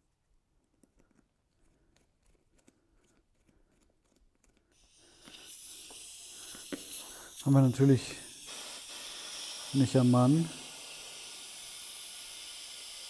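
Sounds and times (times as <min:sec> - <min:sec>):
air hissing: 0:04.8 - 0:13.0
valve clicks and taps: 0:05.2 - 0:07.7.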